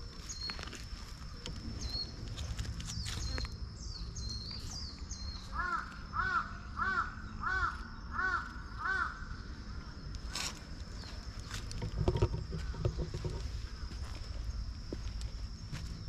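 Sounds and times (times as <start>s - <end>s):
crow cawing: 5.5s - 9.4s.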